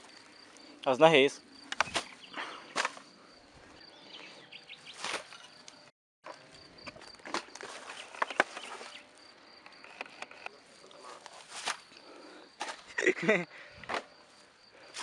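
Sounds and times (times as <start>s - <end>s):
twigs crackling: 1.6s - 3.8s, 6.8s - 13.0s
footsteps in undergrowth: 6.9s - 9.9s, 11.0s - 11.9s.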